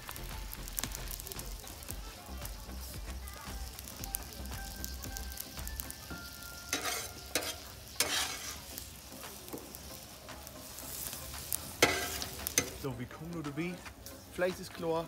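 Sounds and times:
meat sizzling on a hot plate: 0:00.0 - 0:15.0
spatula scraping a plate: 0:06.7 - 0:08.7.

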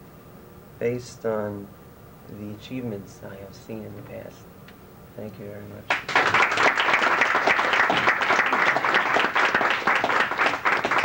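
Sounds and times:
audience applauding: 0:05.9 - 0:11.0.

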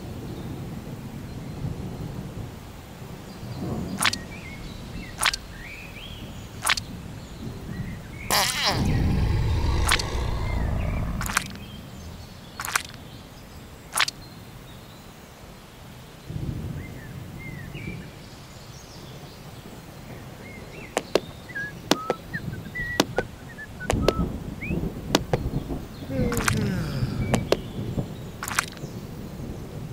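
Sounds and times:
sharp clicks: 0:04.0 - 0:04.2, 0:06.6 - 0:06.8, 0:08.3 - 0:11.6, 0:23.0 - 0:23.3, 0:28.4 - 0:28.8
low rumble: 0:08.7 - 0:12.4
bird chirps: 0:20.6 - 0:25.6.

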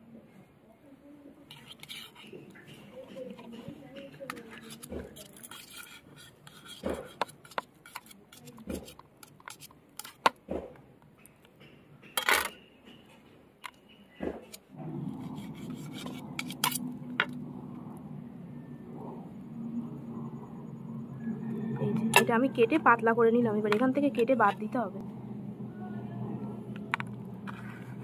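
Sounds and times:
knife tapping and scraping on plate: 0:01.5 - 0:10.3
steady low hum: 0:14.6 - 0:28.0.

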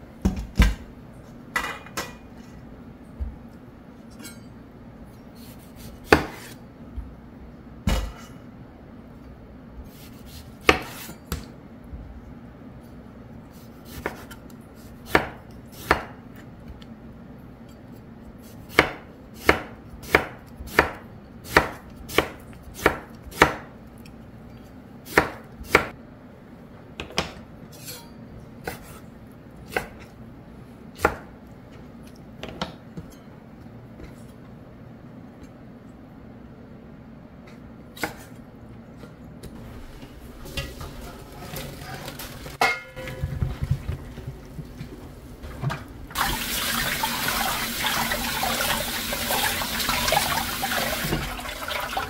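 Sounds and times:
knife slicing on a cutting board: 0:05.4 - 0:06.6, 0:09.8 - 0:11.2, 0:13.6 - 0:16.1, 0:28.6 - 0:29.1.

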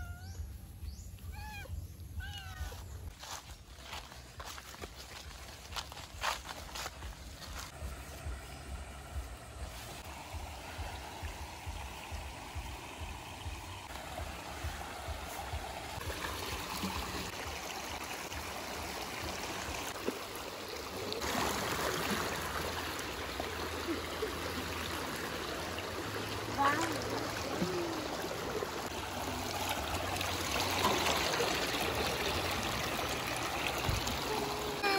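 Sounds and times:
stream running over stones: 0:01.7 - 0:34.9
feet splashing through water: 0:03.1 - 0:08.7.

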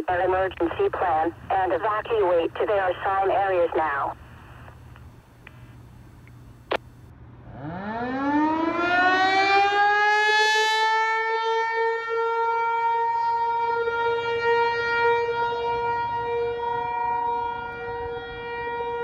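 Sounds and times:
warning siren winding up: 0:07.5 - 0:12.9.

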